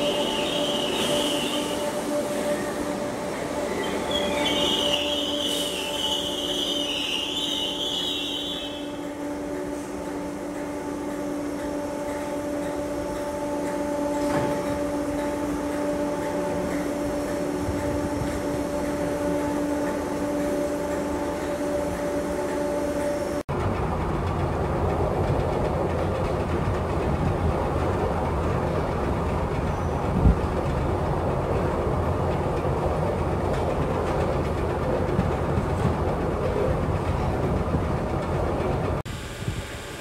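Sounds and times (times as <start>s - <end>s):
electric train humming: 0.0s - 40.0s.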